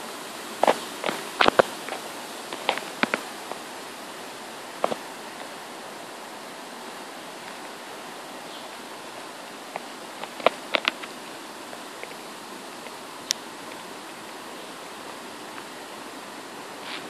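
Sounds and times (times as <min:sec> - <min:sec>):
heavy rain on trees: 0:00.0 - 0:17.0.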